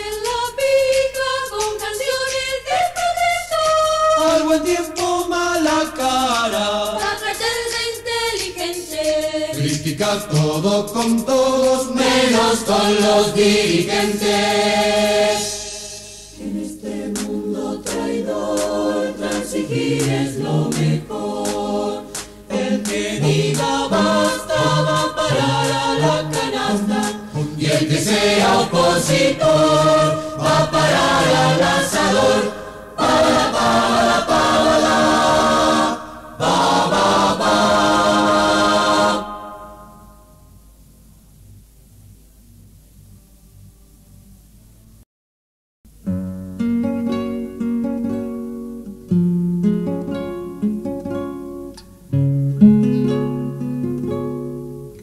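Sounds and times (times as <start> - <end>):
choir singing a cappella: 0.0 - 40.3.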